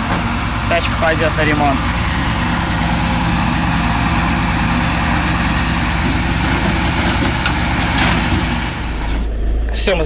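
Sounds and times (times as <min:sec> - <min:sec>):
diesel engine running: 0:00.0 - 0:10.0
metal clank: 0:06.0 - 0:10.0.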